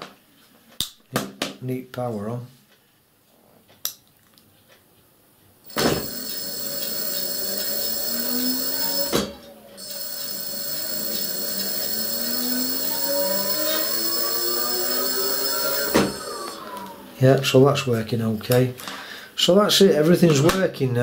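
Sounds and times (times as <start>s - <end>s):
electric motor whine: 5.7s - 17.2s.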